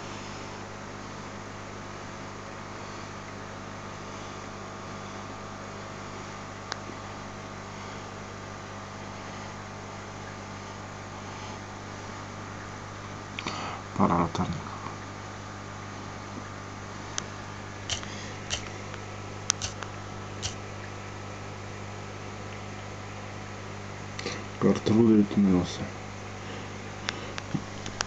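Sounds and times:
low mains hum: 0.0s - 28.0s
even hiss: 17.8s - 20.6s.

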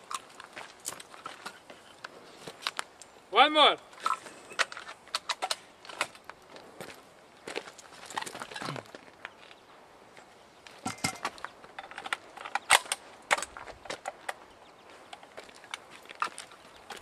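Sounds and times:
rifle clicks and clacks: 4.0s - 6.2s, 11.8s - 14.4s.

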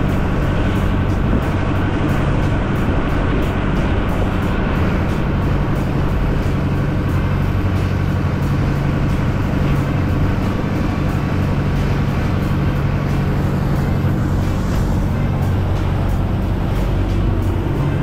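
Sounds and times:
boat engine running: 0.0s - 18.0s
water rushing along hull: 0.0s - 18.0s.

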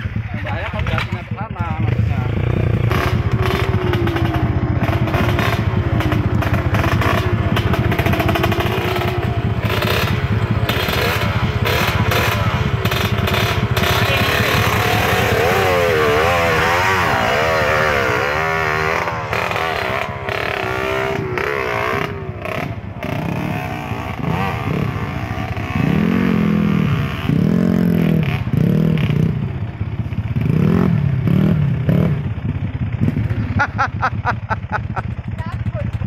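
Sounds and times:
motorcycle engines revving: 0.0s - 36.0s.

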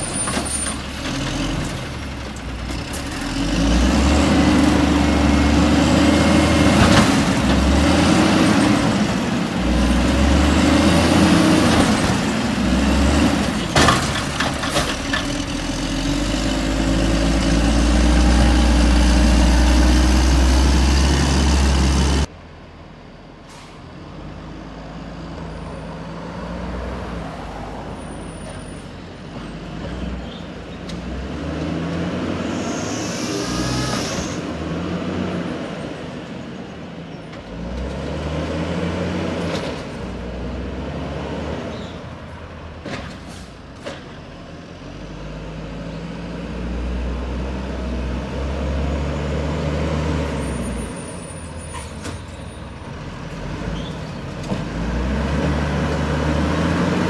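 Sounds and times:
truck engine revving: 0.0s - 22.3s, 29.2s - 36.6s, 37.4s - 42.5s, 44.7s - 52.0s, 52.7s - 57.0s
air brake hisses: 23.4s - 23.9s, 32.5s - 34.4s.

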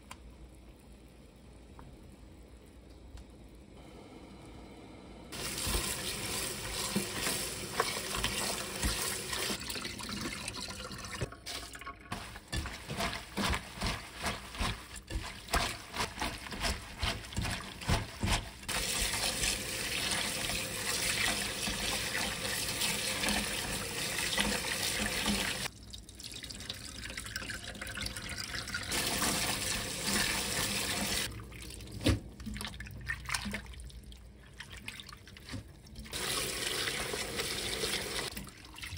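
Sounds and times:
tap water running into steel bowl: 5.4s - 13.2s
hands splashing and squelching leaves: 12.1s - 22.3s.

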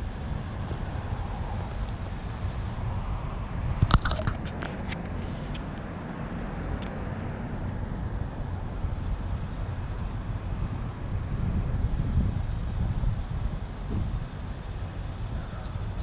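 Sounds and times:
traffic rumble: 0.0s - 16.0s
sharp clicks and knocks: 3.8s - 5.6s.

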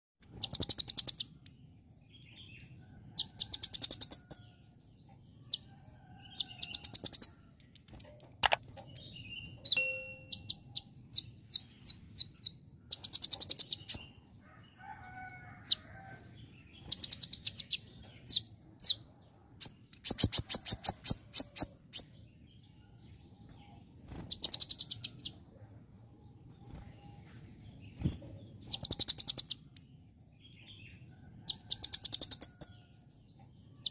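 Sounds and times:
bird singing rapid high chips: 0.2s - 1.5s, 6.4s - 14.1s, 19.7s - 22.1s, 24.1s - 25.3s, 28.6s - 29.9s.

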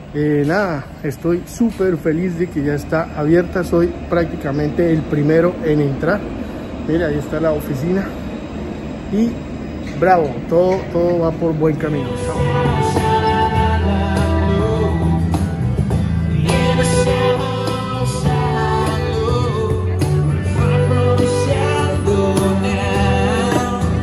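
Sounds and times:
man singing into a microphone: 11.2s - 15.6s, 16.2s - 24.0s
electric guitar: 11.8s - 24.0s
bass: 11.9s - 24.0s
acoustic guitar: 12.2s - 24.0s.

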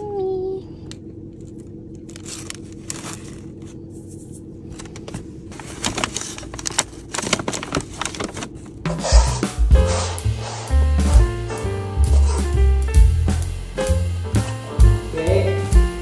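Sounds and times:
steady low hum: 0.0s - 16.0s
paper and plastic wrapper rustling: 1.4s - 3.8s, 4.7s - 8.9s.

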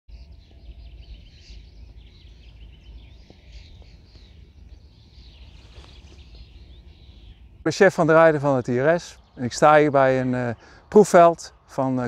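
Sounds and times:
wind rumble on microphone: 0.1s - 7.7s
small birds singing: 0.1s - 12.0s.

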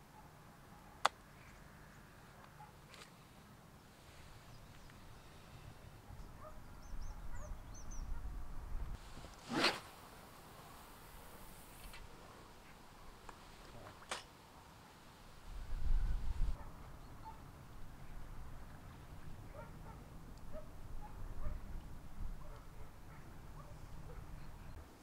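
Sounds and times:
faint birds chirping: 0.7s - 8.8s, 23.1s - 24.9s
zip-like rasp: 9.3s - 9.9s.

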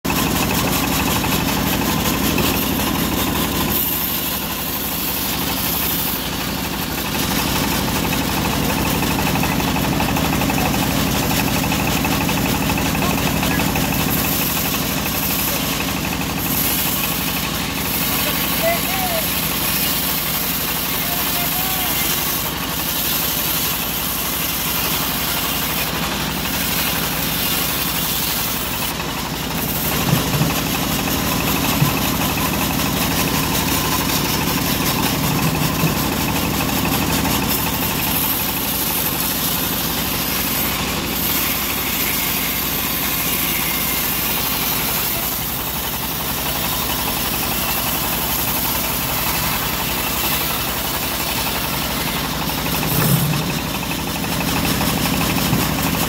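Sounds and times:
band sawmill cutting log: 0.1s - 56.0s.

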